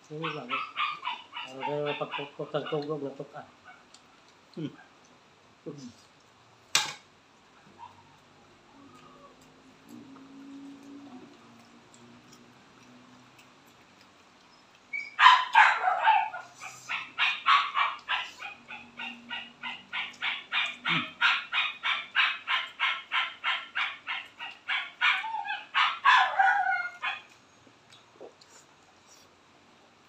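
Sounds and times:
animal calling rhythmically: 0.1 - 3.0, 14.9 - 27.4.

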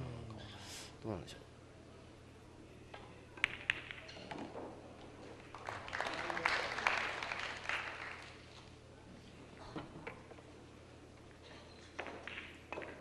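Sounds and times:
pool balls clicking: 3.0 - 5.6, 11.3 - 13.0
audience applause: 5.5 - 8.4.

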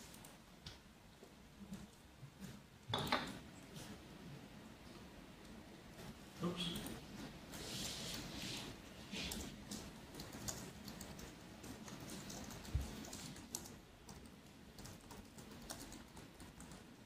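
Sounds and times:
low room hum: 0.0 - 17.0
laptop keys clicking: 9.3 - 16.9.

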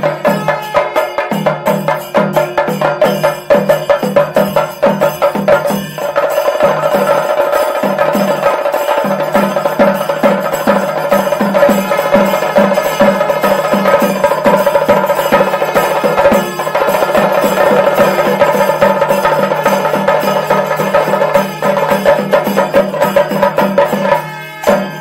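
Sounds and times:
drums played fast with sticks: 0.0 - 25.0
hand cymbals: 0.0 - 25.0.

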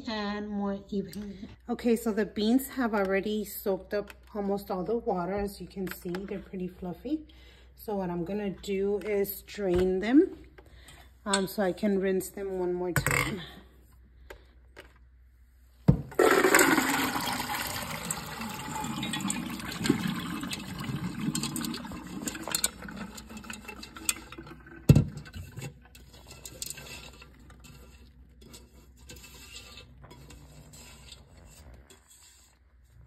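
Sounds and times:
water draining through colander: 16.1 - 28.1
beans clattering: 16.2 - 24.6.

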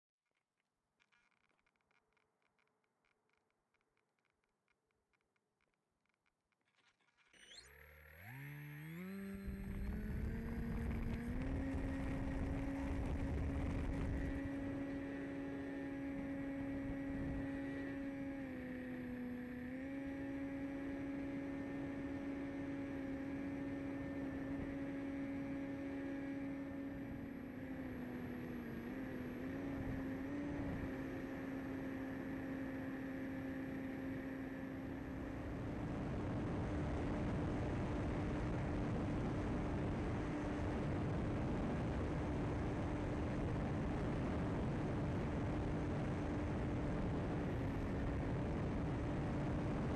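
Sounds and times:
model airplane motor whine: 6.6 - 49.9
wind rushing over microphone: 9.4 - 15.3, 35.1 - 49.9.

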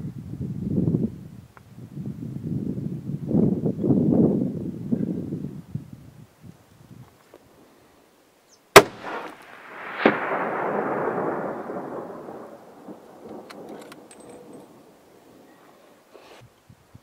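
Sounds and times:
duller crack: 8.8 - 14.8
rifle shot: 8.8 - 14.8
rumbling echo: 8.8 - 15.4
small clicks: 13.2 - 14.7.

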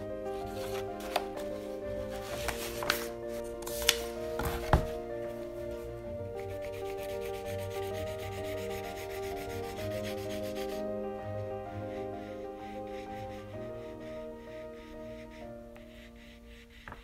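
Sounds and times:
soft background music: 0.0 - 17.0
pencil scratching on paper: 6.4 - 17.0.

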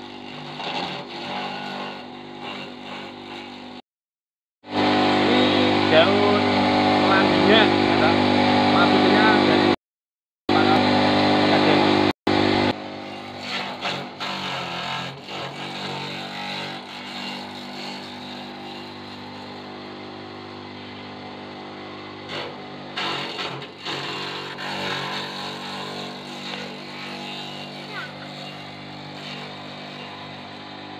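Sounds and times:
grass chopper motor hum: 4.6 - 9.8, 10.5 - 30.9.

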